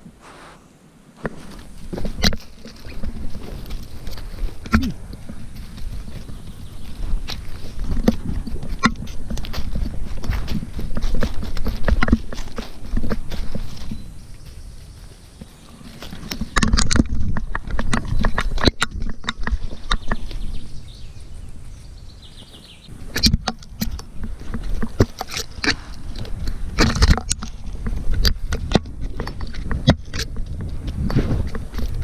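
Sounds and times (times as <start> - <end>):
brushing through moss and twigs: 0.0 - 32.0.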